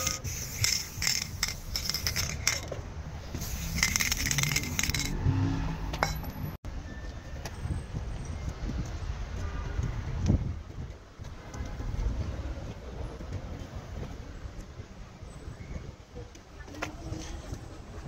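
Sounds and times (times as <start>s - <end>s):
spray can hissing: 0.0s - 2.6s, 3.3s - 5.1s
spray can ball rattling: 0.0s - 2.7s, 3.4s - 5.2s
outdoor background noise: 0.0s - 18.0s.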